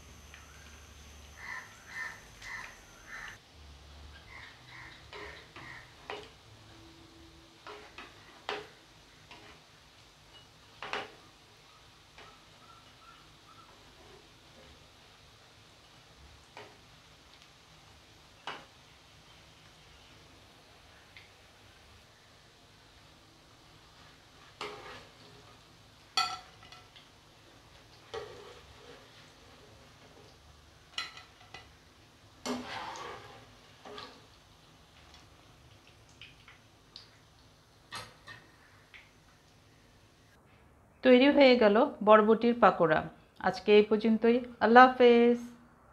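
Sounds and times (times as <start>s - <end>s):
faint sizzle of frying: 0.0s - 45.7s
metal spatula clinking on pan: 26.2s - 27.0s.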